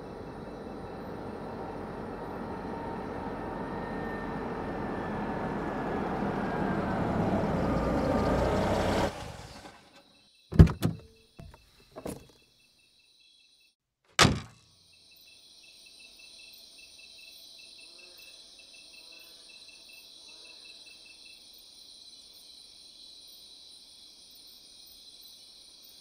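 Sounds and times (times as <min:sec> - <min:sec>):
car approaching: 0:00.0 - 0:10.0
clunks and knocks at car: 0:10.5 - 0:12.3, 0:14.2 - 0:14.6.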